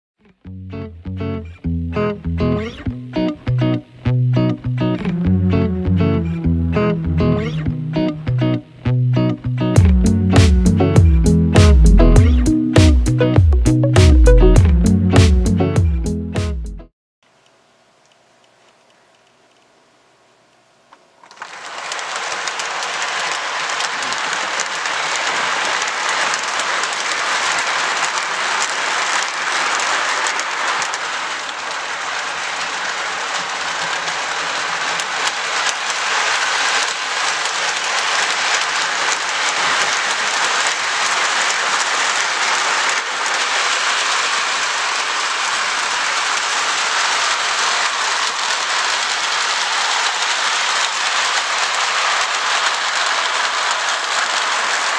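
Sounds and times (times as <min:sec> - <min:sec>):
model train wheels on track: 0:20.9 - 0:54.9.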